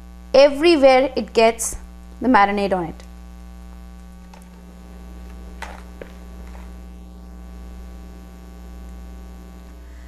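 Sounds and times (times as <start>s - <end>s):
electrical mains hum: 0.0s - 10.0s
soft handling noises: 4.2s - 6.8s.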